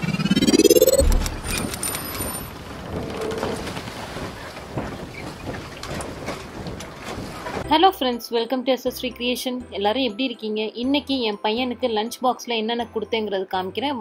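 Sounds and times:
low boom: 0.0s - 1.7s
steady rushing noise: 0.0s - 2.0s.

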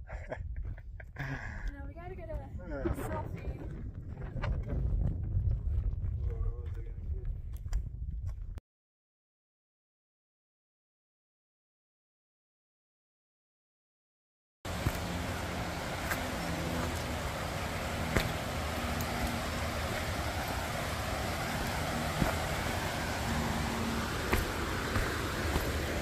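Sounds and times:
footsteps on gravel: 14.7s - 26.0s
steady rushing noise: 14.7s - 26.0s.

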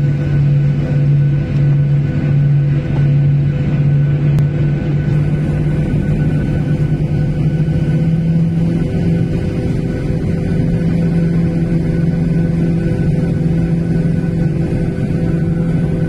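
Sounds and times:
jet engines droning hum: 0.0s - 16.0s.

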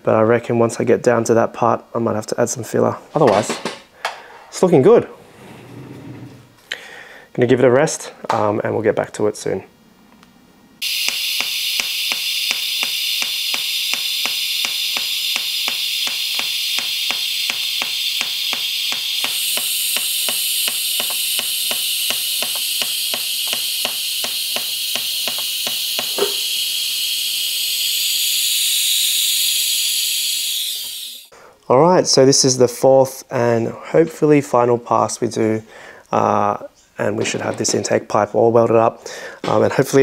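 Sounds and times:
pulsing current ticking: 10.8s - 31.3s
welding arc hissing: 10.8s - 31.3s.

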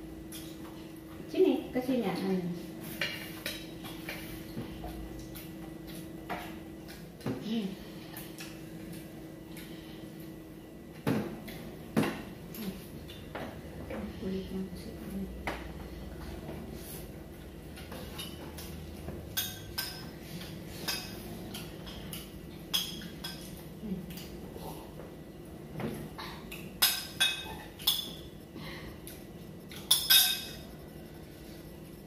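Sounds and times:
plates and spoons clinking: 26.6s - 28.3s, 29.8s - 30.7s.

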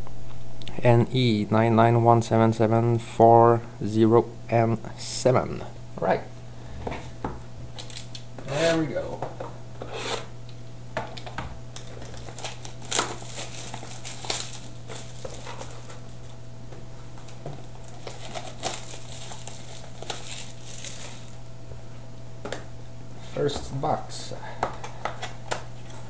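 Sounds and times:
steady low hum: 0.0s - 26.0s
plastic wrapping crinkling and ripping: 7.8s - 8.2s, 11.8s - 16.4s, 17.2s - 21.4s.

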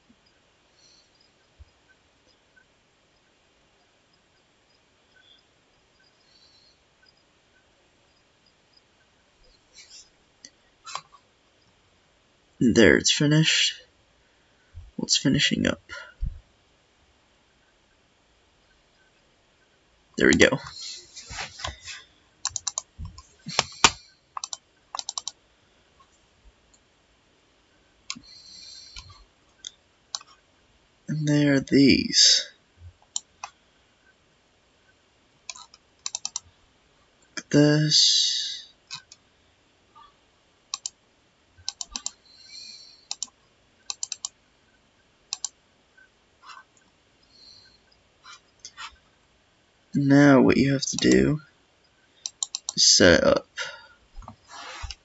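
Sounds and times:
computer mouse double-clicks: 22.4s - 25.4s, 35.5s - 36.4s, 40.7s - 41.0s, 41.6s - 42.2s, 43.1s - 44.4s, 45.3s - 45.6s, 52.2s - 52.8s.

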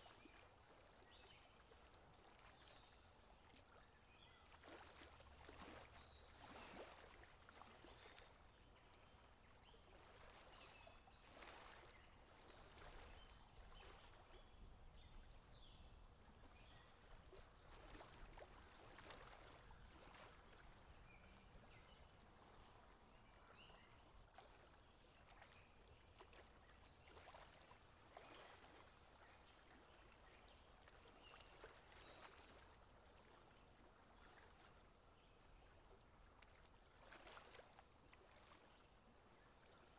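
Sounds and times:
faint flowing water: 0.0s - 39.9s.

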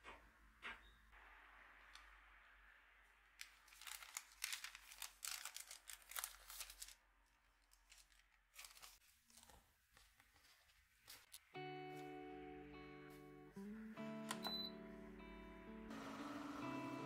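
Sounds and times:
paper crinkling and rustling: 3.4s - 11.5s.

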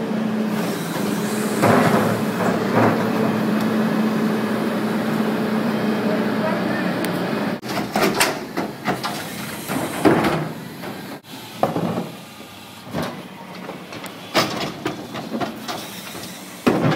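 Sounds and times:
garbage truck engine running: 0.0s - 16.9s
trash cart banging on dumpster rim: 7.6s - 9.2s, 16.6s - 16.9s.

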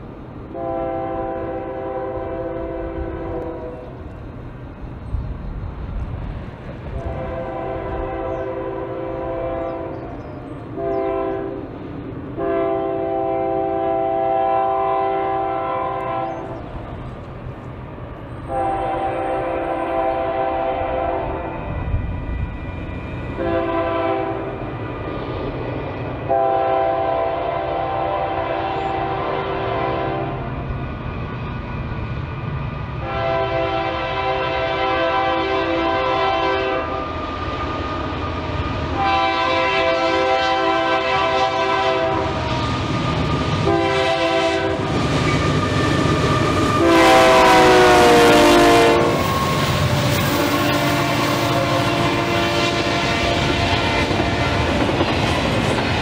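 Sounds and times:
train rumbling: 0.0s - 56.0s
train horn blasts: 0.5s - 4.1s, 6.9s - 11.7s, 12.4s - 16.7s, 18.4s - 22.5s, 23.3s - 24.7s, 26.3s - 30.6s, 33.0s - 37.2s, 38.9s - 54.8s.

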